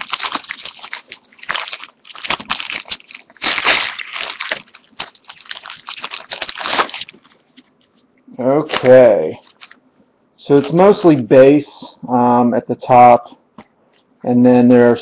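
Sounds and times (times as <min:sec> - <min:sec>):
foil wrapper crinkling and tearing: 0:00.0 - 0:08.0, 0:08.7 - 0:09.8.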